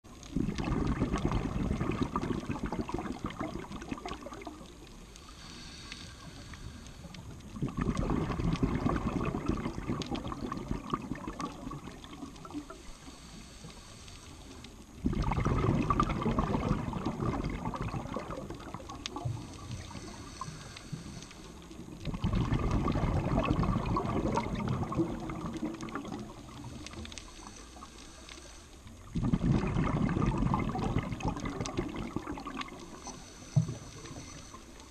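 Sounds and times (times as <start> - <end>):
exhaled bubbles rushing: 0.1 - 5.0, 7.2 - 12.8, 15.0 - 20.6, 21.6 - 27.2, 29.0 - 34.9
diver breathing through regulator: 5.2 - 7.4, 12.6 - 14.8, 19.2 - 21.8, 26.3 - 28.9, 32.9 - 34.9.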